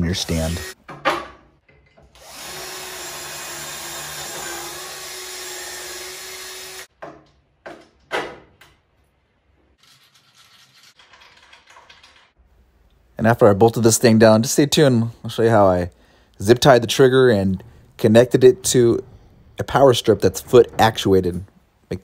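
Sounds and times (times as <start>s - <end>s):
drill boring into wood: 0.3s - 0.8s, 2.2s - 6.9s.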